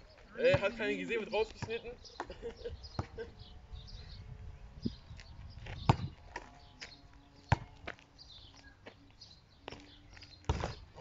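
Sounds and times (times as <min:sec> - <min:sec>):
basketball bouncing on asphalt: 0:00.4 - 0:00.8, 0:01.4 - 0:03.2, 0:05.1 - 0:09.0, 0:09.6 - 0:11.0.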